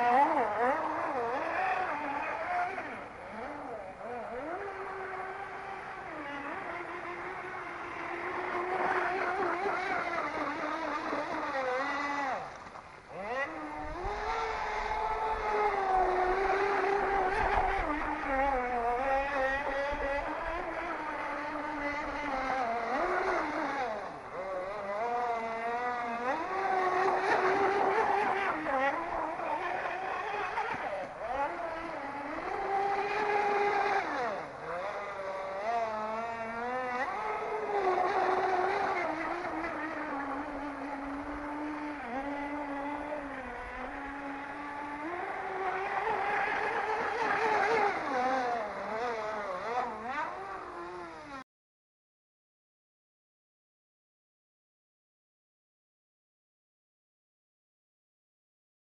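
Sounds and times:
model boat motor whining: 0:00.0 - 0:51.4.

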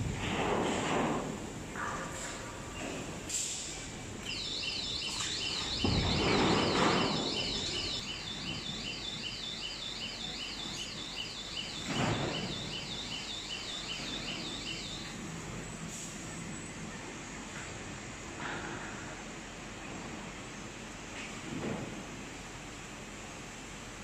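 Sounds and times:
machine noise bursts: 0:04.2 - 0:15.2
warbling electronic alarm: 0:04.2 - 0:15.2.

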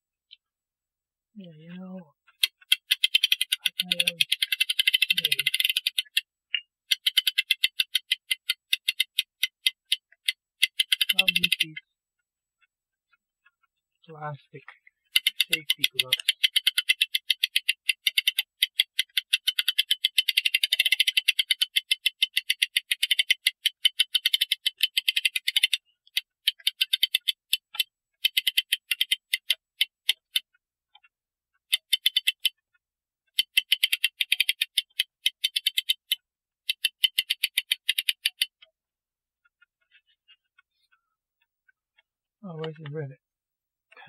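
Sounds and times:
ratchet clicking rapidly: 0:02.3 - 0:06.2, 0:06.9 - 0:11.6, 0:15.1 - 0:30.4, 0:31.7 - 0:32.6, 0:33.3 - 0:38.5.

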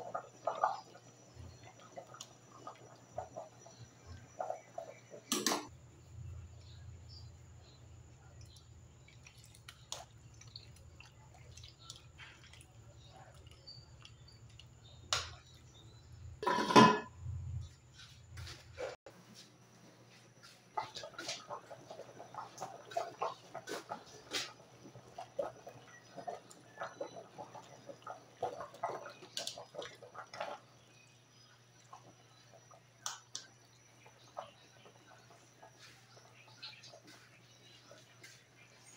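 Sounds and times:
liquid splashing: 0:08.4 - 0:15.5
glass lid clattering on pot: 0:16.4 - 0:17.1
ladle clinking in metal pot: 0:16.4 - 0:17.1.

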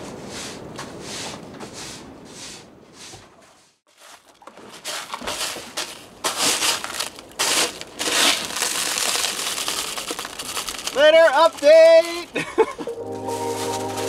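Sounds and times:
scoop scraping through pebbles: 0:03.9 - 0:11.0.

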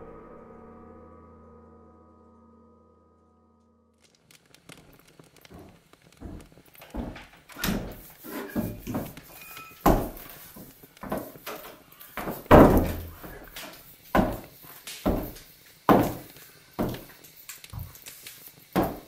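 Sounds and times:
boots on wooden floorboards: 0:04.6 - 0:18.0, 0:18.6 - 0:19.0
wooden door thudding shut: 0:07.0 - 0:08.0, 0:09.8 - 0:10.3, 0:12.2 - 0:13.4.

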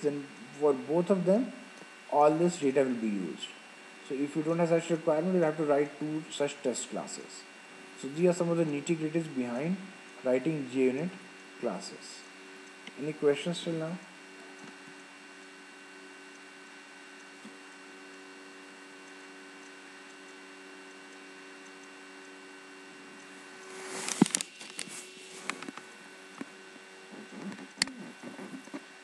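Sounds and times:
electrical hum: 0:00.0 - 0:29.0
rustling: 0:23.6 - 0:25.8.

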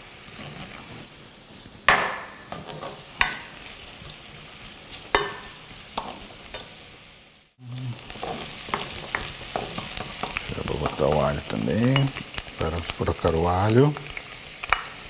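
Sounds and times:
onion sizzling in a pan: 0:00.0 - 0:15.0
spoon stirring and scraping pan: 0:02.3 - 0:06.8, 0:08.0 - 0:15.0
spoon knocking against pan: 0:05.1 - 0:06.1.

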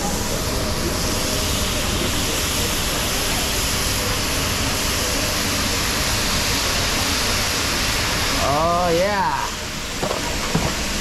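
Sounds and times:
seafood sizzling on a griddle: 0:06.6 - 0:11.0.

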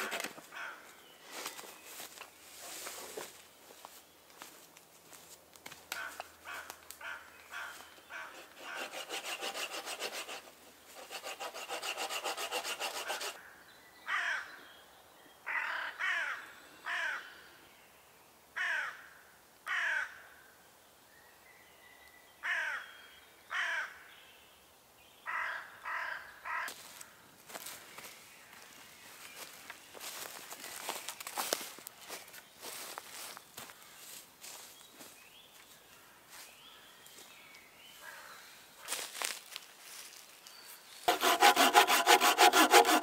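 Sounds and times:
saw cutting wood: 0:00.0 - 0:00.4, 0:08.3 - 0:13.4, 0:41.1 - 0:43.0
crow cawing: 0:00.5 - 0:00.8, 0:15.5 - 0:17.2, 0:18.6 - 0:19.0, 0:19.7 - 0:20.2.

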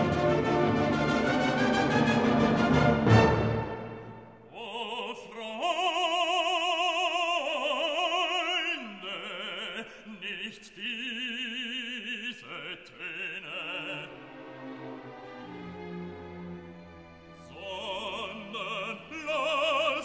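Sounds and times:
operatic voice singing: 0:04.4 - 0:14.5, 0:17.4 - 0:20.0.

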